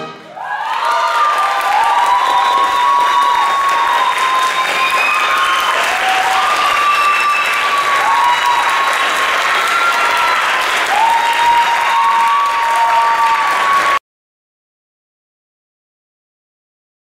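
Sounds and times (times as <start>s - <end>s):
audience applauding: 0.3s - 14.0s
high cheering calls: 0.3s - 14.0s.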